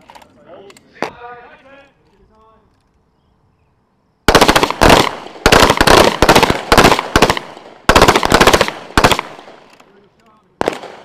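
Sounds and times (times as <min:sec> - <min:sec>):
rapid pistol fire: 0:04.3 - 0:09.6, 0:10.6 - 0:11.0.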